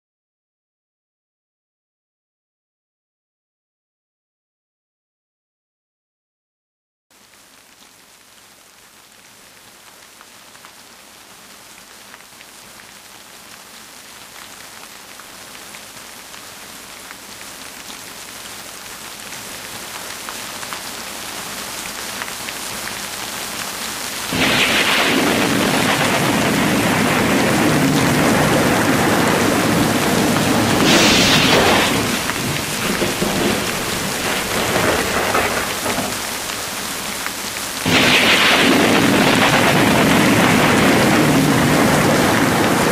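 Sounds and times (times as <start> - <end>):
rain: 7.1 - 42.9
thunderclap: 24.3 - 42.9.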